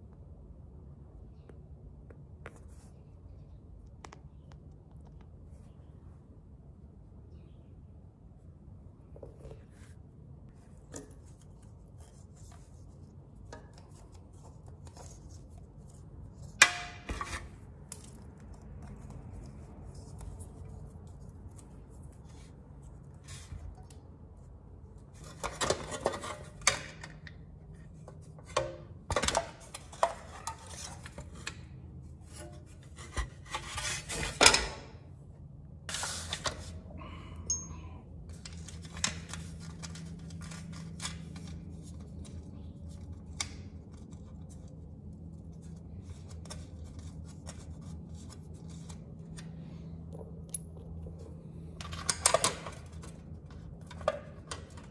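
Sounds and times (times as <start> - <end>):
metal tools clinking: 37.5 - 37.8.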